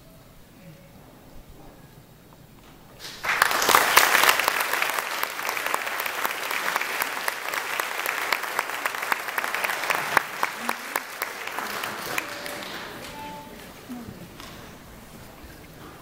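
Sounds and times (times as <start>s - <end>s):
audience applauding: 3.0s - 13.9s.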